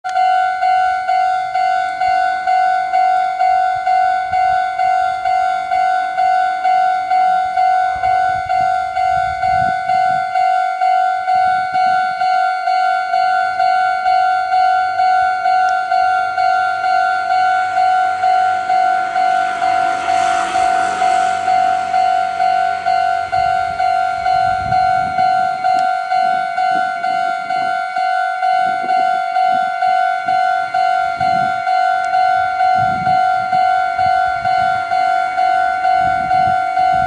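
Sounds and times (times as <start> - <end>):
level crossing alarm bell: 0.0 - 37.0
low rumble: 16.1 - 26.6.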